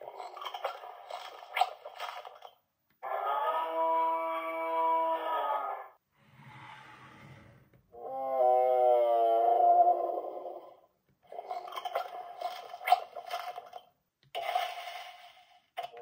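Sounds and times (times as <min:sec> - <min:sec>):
toy dinosaur roar: 0:03.0 - 0:07.0, 0:07.9 - 0:11.7
faint low growl: 0:03.0 - 0:10.9.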